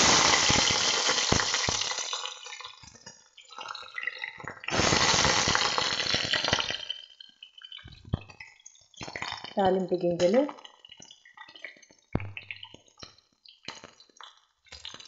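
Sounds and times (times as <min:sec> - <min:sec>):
garlic sizzling in hot oil: 0:00.0 - 0:03.6, 0:04.7 - 0:07.6.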